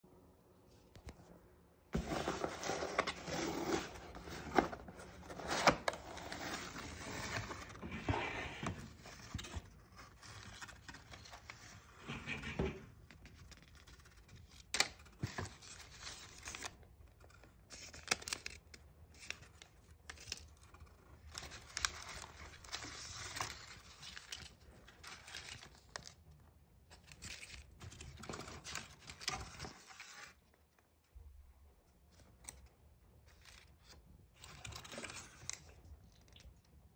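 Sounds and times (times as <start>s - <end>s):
paper envelopes crinkling: 13.2s - 26.2s.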